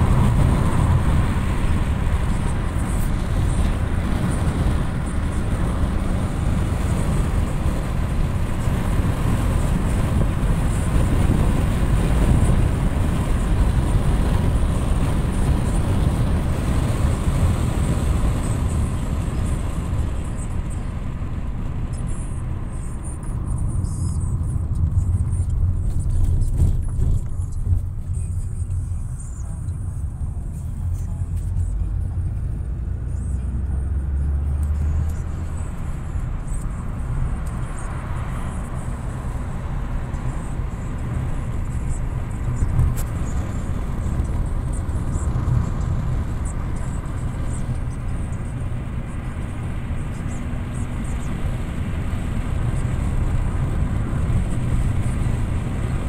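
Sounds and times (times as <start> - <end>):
car road noise from inside: 0.0 - 56.0.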